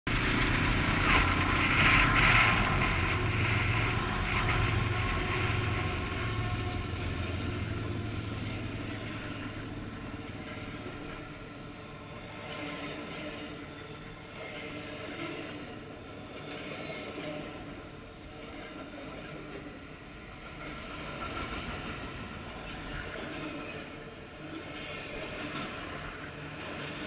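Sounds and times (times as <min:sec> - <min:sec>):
wind noise on microphone: 0:00.1 - 0:11.2
off-road motorcycle running: 0:00.1 - 0:12.3
low steady hum: 0:00.1 - 0:27.0.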